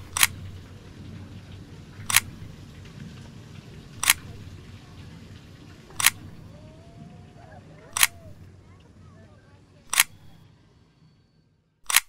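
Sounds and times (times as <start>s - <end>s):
low background hum: 0.0s - 12.0s
camera shutter clicks: 2.1s - 2.3s, 4.0s - 4.2s, 6.0s - 6.2s, 7.9s - 8.2s, 9.9s - 10.4s.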